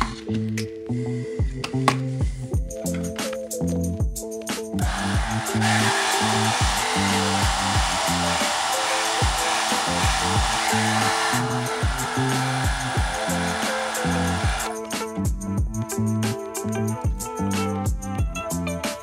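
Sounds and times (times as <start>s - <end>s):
background music with beat: 0.0s - 19.0s
hair dryer blowing: 4.8s - 14.8s.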